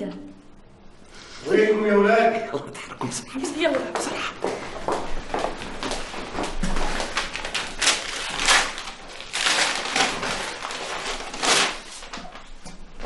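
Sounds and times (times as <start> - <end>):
footsteps on hard floor: 3.7 - 7.2.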